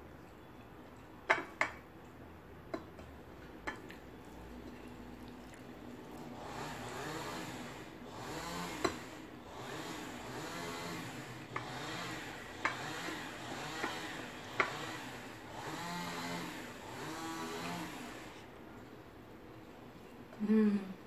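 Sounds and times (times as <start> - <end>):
hands working food on a plate: 0.4 - 5.6, 11.4 - 14.9.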